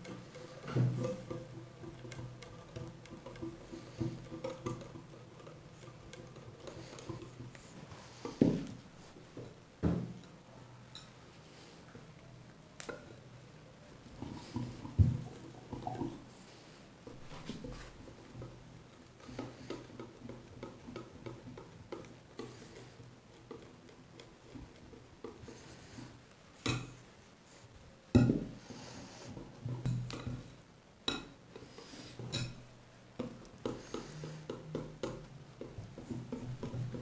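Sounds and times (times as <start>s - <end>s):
whisk scraping glass bowl: 0.0s - 8.4s.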